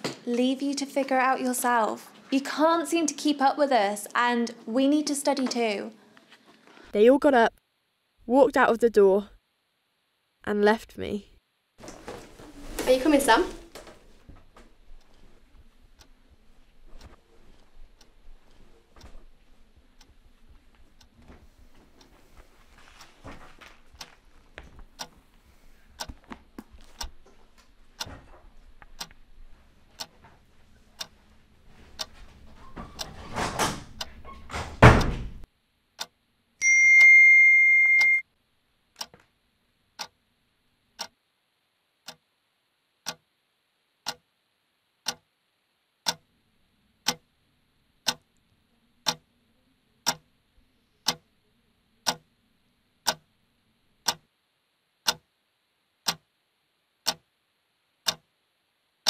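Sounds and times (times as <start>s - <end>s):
clock ticking: 14.9s - 21.2s, 24.9s - 25.2s, 28.0s - 28.2s, 28.8s - 29.2s, 29.9s - 30.2s, 31.0s - 31.2s, 39.0s - 39.2s, 40.0s - 40.2s, 41.0s - 41.2s, 42.0s - 42.3s, 43.0s - 43.3s, 44.0s - 44.3s, 45.0s - 45.3s, 46.0s - 46.3s, 47.0s - 47.3s, 48.0s - 48.3s, 49.0s - 49.3s, 50.0s - 50.3s, 51.0s - 51.3s, 52.0s - 52.3s, 53.0s - 53.3s, 54.0s - 54.3s, 55.0s - 55.3s, 56.0s - 56.3s, 57.0s - 57.3s, 58.0s - 58.3s
steady high tone: 36.6s - 38.2s.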